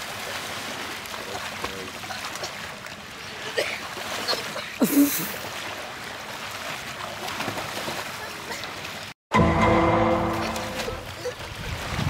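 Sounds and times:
water splashing around swimmers: 0:00.0 - 0:12.0
short loud splash: 0:09.4 - 0:12.0.

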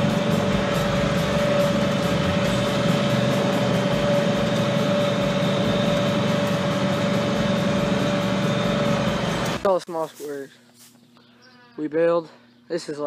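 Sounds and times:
tractor and baler droning: 0:00.0 - 0:09.8
constant whine: 0:00.0 - 0:11.2.

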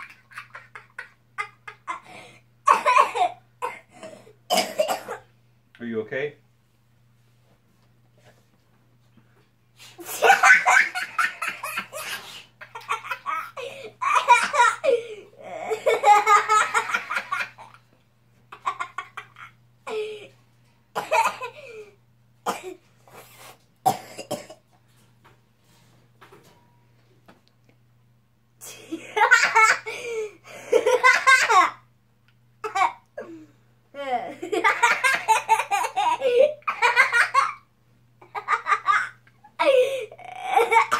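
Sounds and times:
boy laughing hard: 0:00.0 - 0:03.4, 0:10.0 - 0:17.8, 0:28.9 - 0:31.8, 0:34.4 - 0:37.6, 0:38.2 - 0:40.9.

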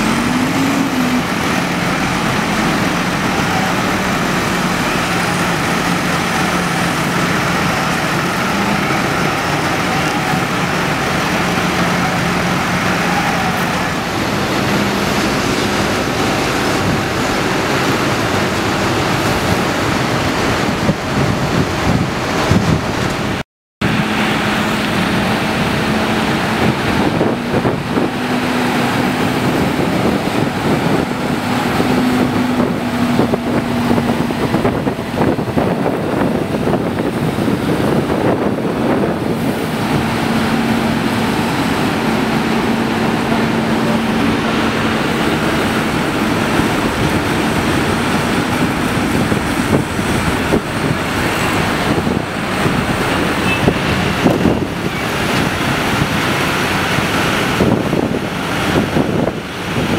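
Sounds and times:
tractor diesel engines running: 0:00.0 - 0:59.9
wind noise on microphone: 0:00.0 - 0:59.9.

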